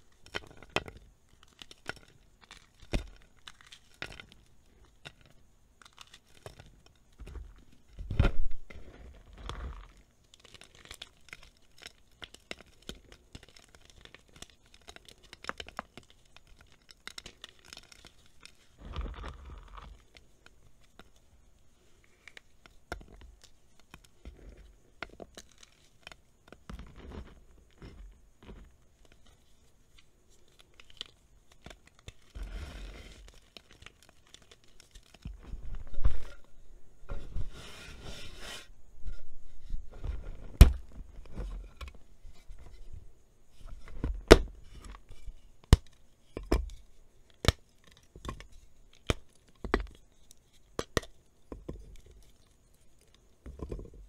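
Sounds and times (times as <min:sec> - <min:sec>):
chalk block crunching and scraping: 0:30.8 - 0:43.0.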